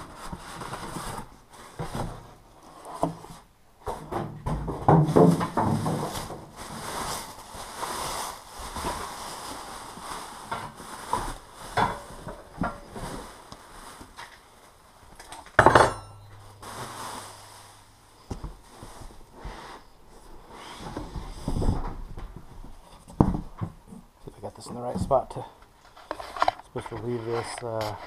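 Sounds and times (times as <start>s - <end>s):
plastic wrapping crinkling: 5.2s - 15.5s, 16.3s - 19.3s.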